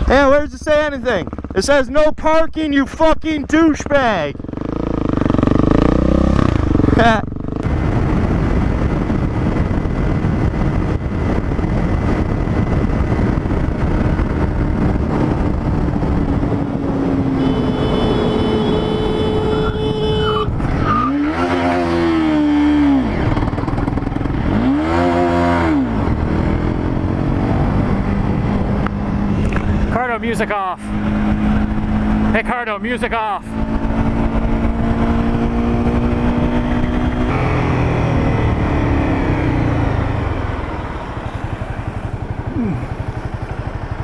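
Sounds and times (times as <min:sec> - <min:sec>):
motorcycle engine running: 0:00.0 - 0:20.7, 0:21.8 - 0:44.0
wind rushing over microphone: 0:00.0 - 0:44.0.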